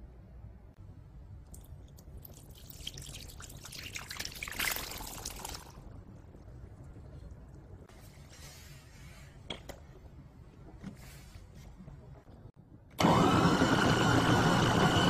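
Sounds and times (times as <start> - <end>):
water and peas pouring: 1.5 - 6.0.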